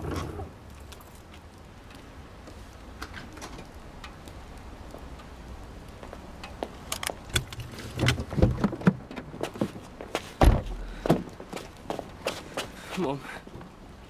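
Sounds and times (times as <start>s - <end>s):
low thuds: 10.4s - 11.5s.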